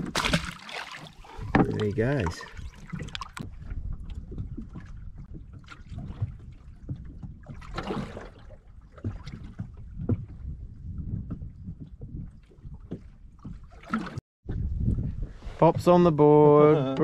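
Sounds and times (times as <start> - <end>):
loud splash: 0.0 - 1.1
water sloshing against boat hull: 0.0 - 17.0
wind buffeting microphone: 1.2 - 13.7, 14.4 - 17.0.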